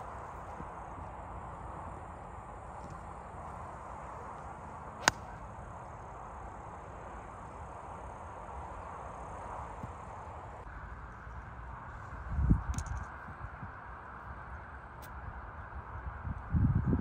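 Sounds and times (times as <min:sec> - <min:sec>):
outdoor background noise: 0:00.0 - 0:17.0
golf club striking ball: 0:05.0 - 0:05.4.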